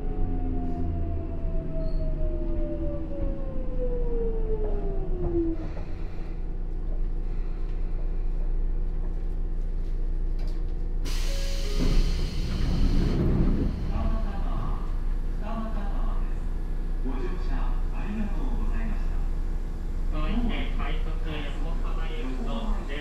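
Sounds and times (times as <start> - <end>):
low train rumble: 0.0 - 23.0
compressed air hiss: 11.1 - 13.2
train inverter whining down: 11.1 - 15.1.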